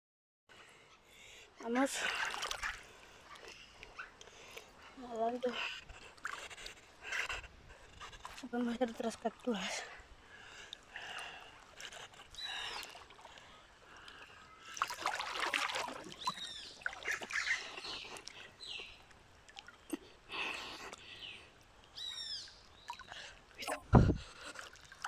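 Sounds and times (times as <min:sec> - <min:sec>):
river water sloshing and splashing: 0:01.8 - 0:07.0, 0:08.1 - 0:25.0
birds chirping: 0:11.8 - 0:14.8, 0:15.8 - 0:23.4.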